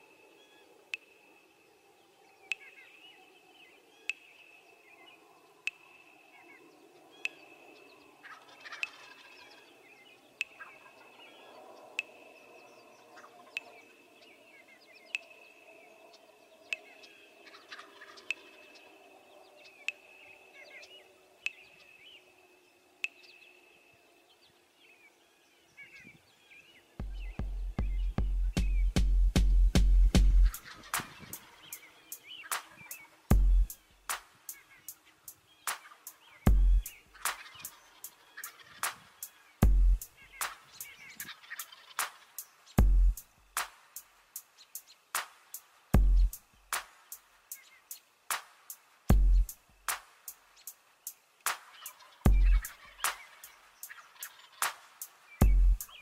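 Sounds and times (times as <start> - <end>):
songbird chirps: 0.0 - 56.0
faint turkey gobbles: 40.3 - 42.3, 51.6 - 54.8.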